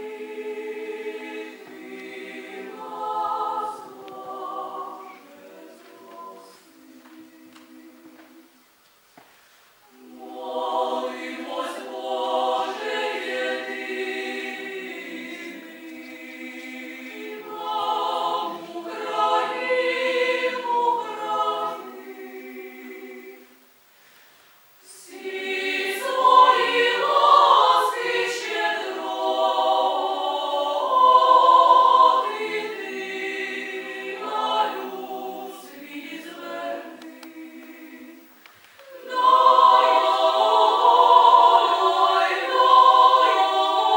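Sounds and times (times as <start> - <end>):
female choir singing a cappella: 0.0 - 8.7, 9.8 - 23.7, 24.8 - 43.9.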